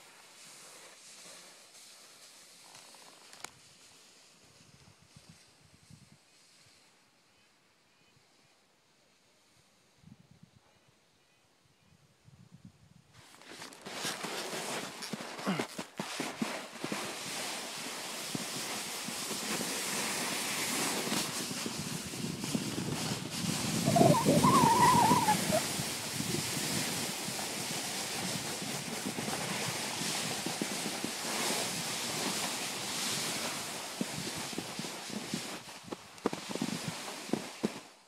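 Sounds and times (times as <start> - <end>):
sliding over packed snow: 0.0 - 6.9, 13.2 - 38.0
wind rushing over microphone: 18.3 - 37.0.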